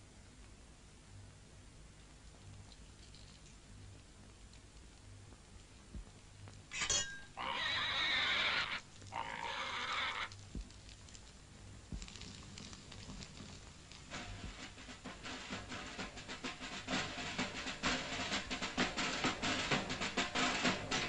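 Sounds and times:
harsh animal cries: 7.3 - 10.4.

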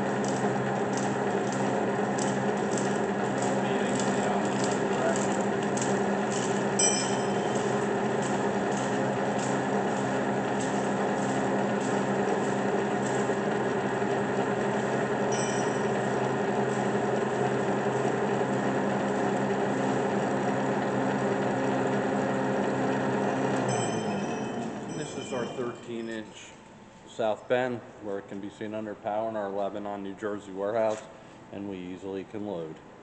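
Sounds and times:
lathe motor humming: 0.0 - 26.2.

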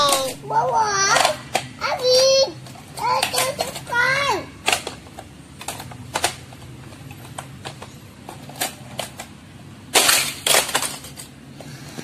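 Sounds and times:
plastic toy cars clattering: 0.0 - 12.0.

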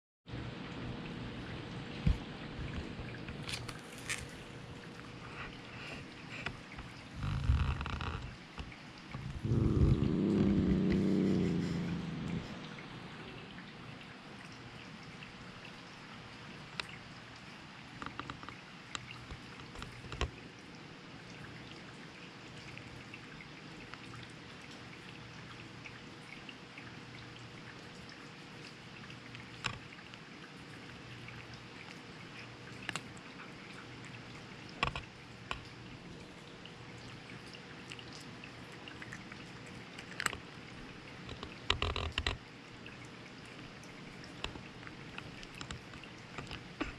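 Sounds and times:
cat crunching dry kibble: 3.4 - 4.4.

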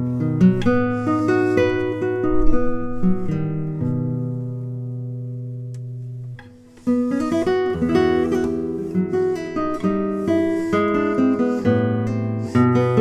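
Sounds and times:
classical guitar fingerpicking: 0.0 - 13.0.

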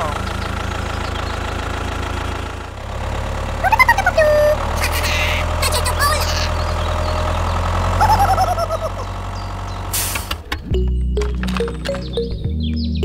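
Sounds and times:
tractor engine idling: 0.0 - 12.8
squeaky voice-like sounds: 3.6 - 6.7.

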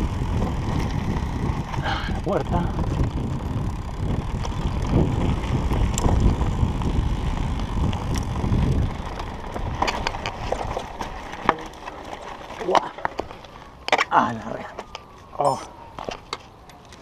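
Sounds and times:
wind rushing over microphone: 0.0 - 11.4
bike clicks and rattles: 0.0 - 17.0
bike tyre noise on dirt: 0.0 - 17.0.

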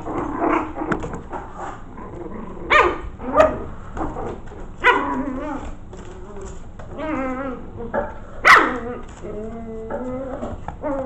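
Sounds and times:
puppies barking: 1.6 - 5.8, 6.5 - 9.3.

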